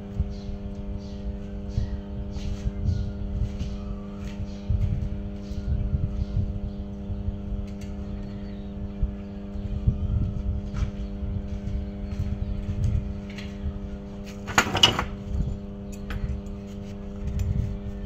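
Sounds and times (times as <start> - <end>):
electrical mains hum: 0.0 - 18.0
uneven low rumble: 0.0 - 18.0.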